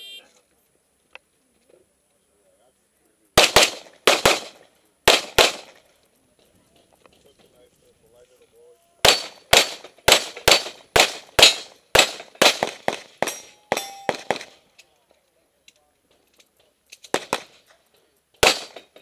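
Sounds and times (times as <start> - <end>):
pistol shots: 3.4 - 5.8, 9.0 - 14.6, 17.0 - 17.7, 18.4 - 19.0.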